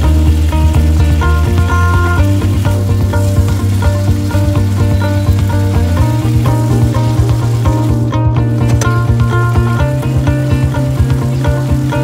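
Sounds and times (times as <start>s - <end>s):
mushrooms sizzling in a pan: 0.0s - 8.1s
instrumental music with beat: 0.0s - 12.0s.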